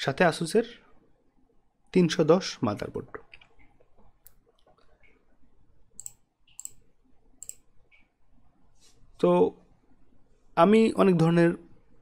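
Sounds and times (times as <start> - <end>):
computer mouse clicks: 6.0 - 8.1.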